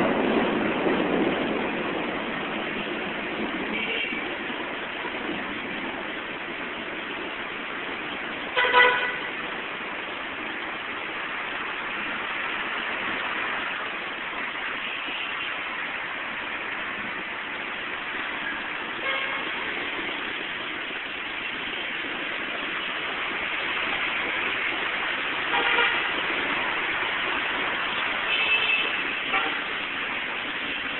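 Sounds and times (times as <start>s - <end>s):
heavy rain hissing: 0.0s - 30.9s
traffic on wet road: 0.0s - 30.9s
car horns honking: 8.6s - 9.3s, 19.0s - 19.5s, 25.5s - 26.1s.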